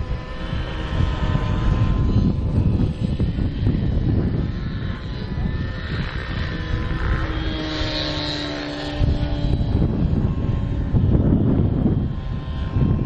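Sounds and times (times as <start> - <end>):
model airplane engine droning: 0.0 - 13.0
wind buffeting microphone: 0.0 - 13.0.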